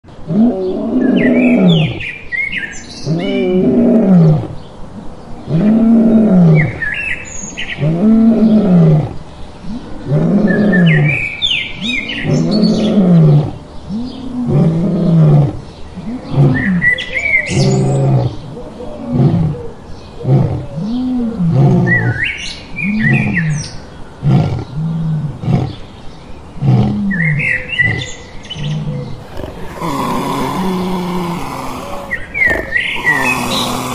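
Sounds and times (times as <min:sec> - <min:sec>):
lion roaring: 0:17.5 - 0:18.4, 0:29.0 - 0:33.9
birds chirping: 0:27.2 - 0:33.9.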